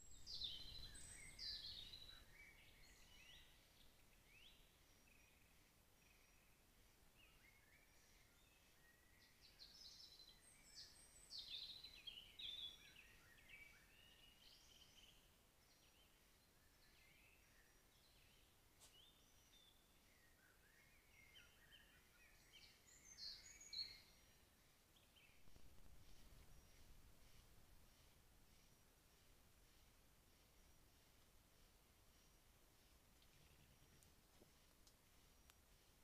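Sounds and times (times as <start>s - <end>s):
songbird chirping and warbling: 0.0s - 36.0s
low hiss: 23.4s - 36.0s.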